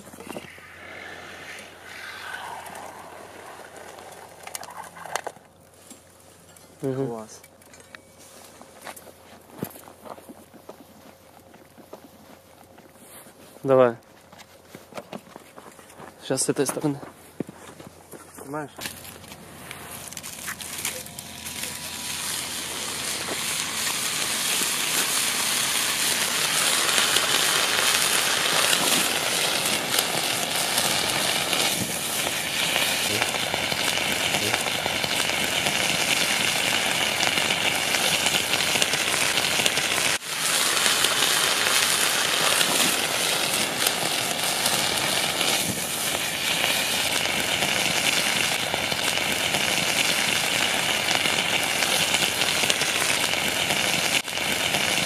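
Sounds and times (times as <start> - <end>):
fish sizzling and crackling: 0.0 - 6.4, 18.8 - 55.0.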